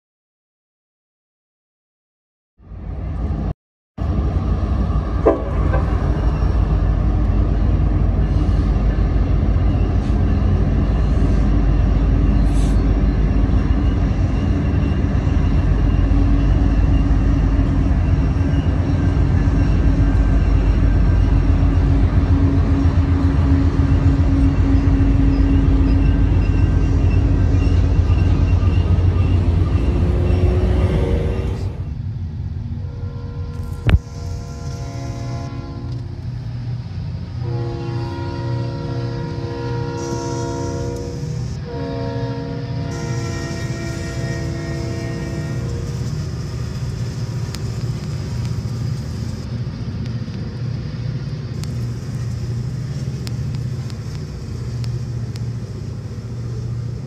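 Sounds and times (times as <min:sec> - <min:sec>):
diesel locomotive rumbling: 0:02.6 - 0:57.0.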